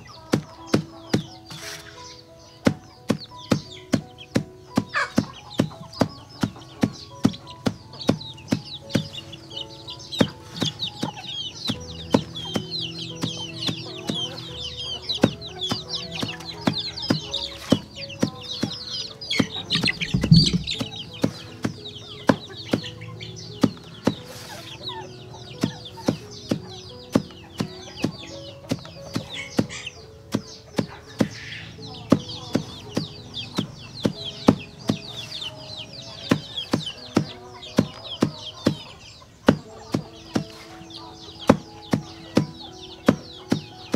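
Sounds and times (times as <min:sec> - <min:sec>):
chickens peeping and clucking: 0:00.0 - 0:43.9
heavy low thump: 0:19.4 - 0:22.9
sharp taps: 0:19.4 - 0:22.9.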